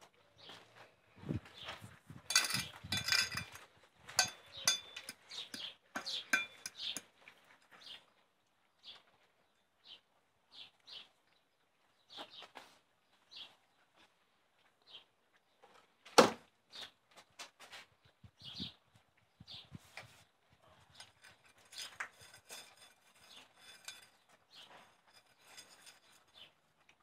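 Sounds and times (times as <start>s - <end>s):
steel bowls clinking and rattling: 2.3s - 7.2s, 21.0s - 26.6s.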